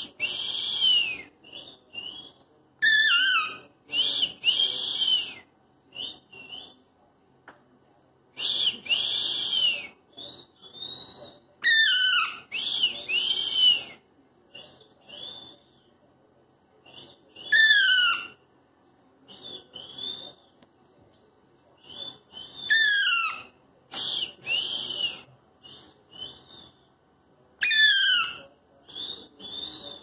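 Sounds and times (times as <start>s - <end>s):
parakeet screeching calls: 2.8s - 3.6s, 11.6s - 12.5s, 17.5s - 18.4s, 22.7s - 23.5s, 27.6s - 28.4s.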